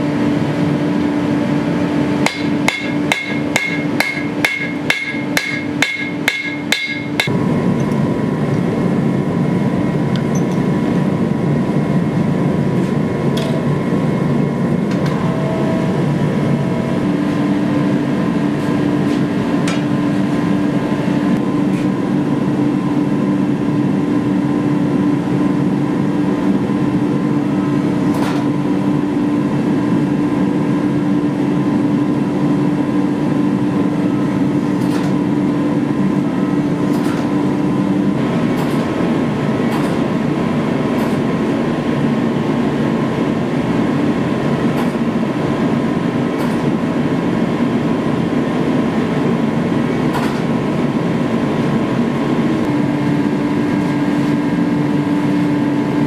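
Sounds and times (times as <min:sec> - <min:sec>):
steady hum: 0:00.0 - 0:56.0
hammer striking steel on anvil: 0:02.2 - 0:08.0.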